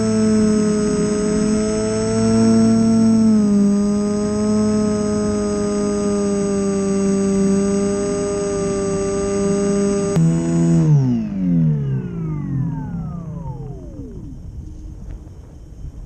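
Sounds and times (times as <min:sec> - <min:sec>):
electric motor and propeller whine: 0:00.0 - 0:16.0.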